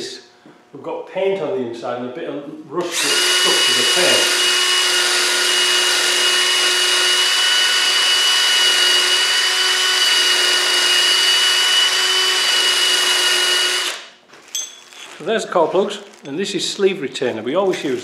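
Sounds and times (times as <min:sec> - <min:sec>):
drill with wire brush scouring metal: 0:02.8 - 0:14.1.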